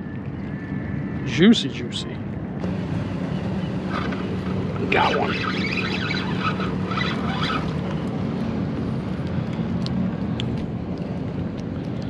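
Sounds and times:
traffic engine drone: 0:00.0 - 0:12.0
wind: 0:00.0 - 0:12.0
water noise: 0:02.6 - 0:12.0
faint clicks: 0:08.8 - 0:12.0.

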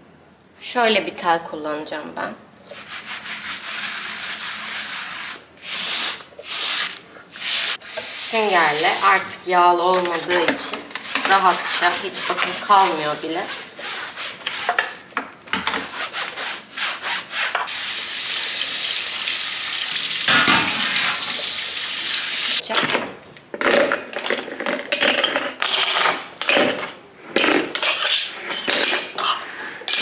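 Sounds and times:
tap water running onto tray: 0:17.7 - 0:22.6
metal caps clattering in bowl: 0:23.6 - 0:30.0.

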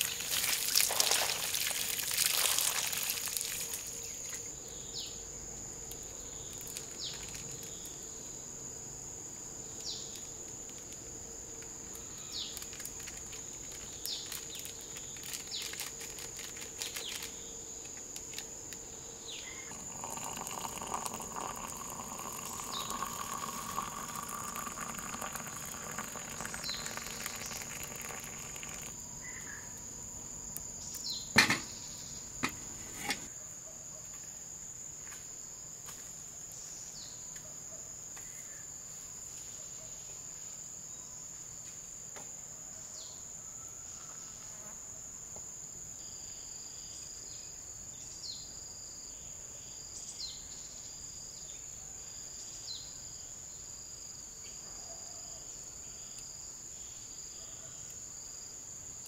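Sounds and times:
insects shrilling: 0:00.0 - 0:08.7, 0:09.6 - 0:33.3.

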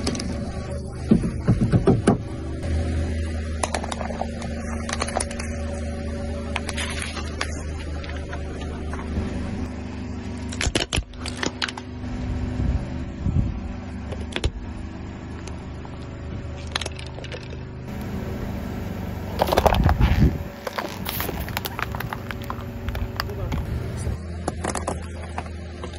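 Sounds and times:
car engine running: 0:00.0 - 0:25.9
tyre crushing plastic objects: 0:19.4 - 0:23.3.

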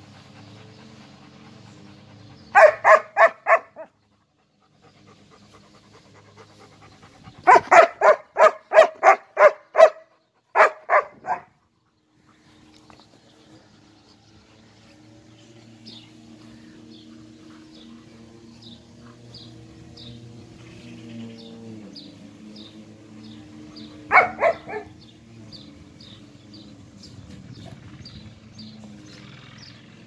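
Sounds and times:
dog barking: 0:02.6 - 0:03.9, 0:07.5 - 0:11.5, 0:24.1 - 0:24.9.

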